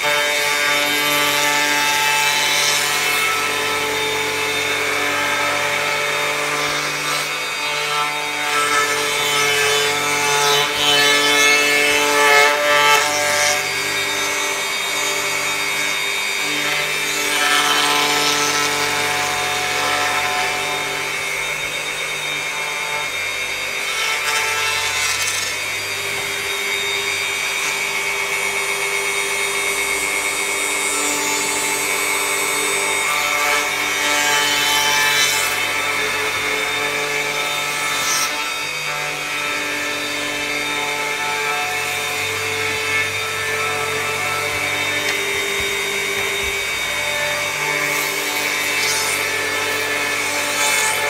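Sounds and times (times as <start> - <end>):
electric router whining: 0.0 - 51.0
router bit cutting wood: 0.0 - 51.0.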